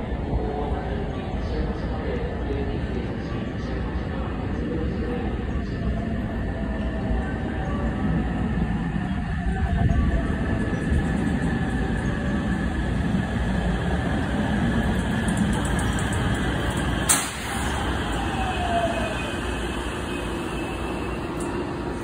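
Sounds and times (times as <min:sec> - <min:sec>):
train wheels rumbling on rails: 0:08.7 - 0:22.0
sharp clack: 0:17.0 - 0:17.6.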